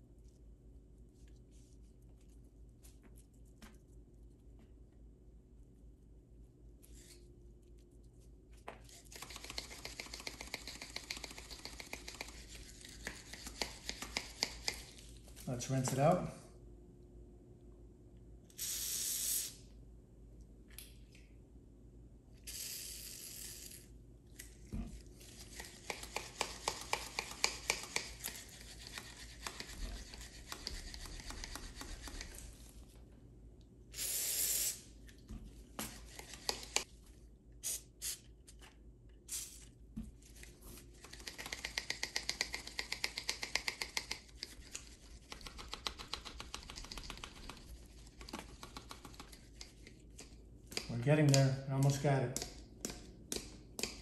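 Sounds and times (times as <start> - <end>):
spray can hissing bursts: 18.6 - 19.6, 34.0 - 34.9, 37.6 - 38.2.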